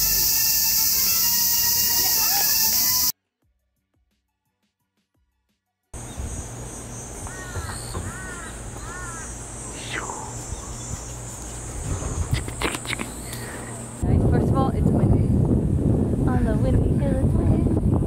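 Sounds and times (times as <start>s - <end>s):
bird calling: 0.0s - 3.1s, 6.0s - 13.9s
cicadas buzzing: 0.0s - 3.1s, 6.0s - 14.0s.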